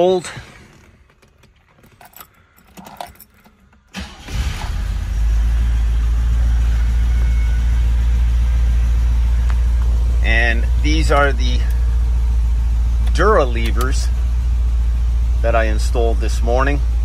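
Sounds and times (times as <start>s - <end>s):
car engine cranking and idling: 0.0s - 17.0s
keys jangling at ignition: 0.6s - 4.2s.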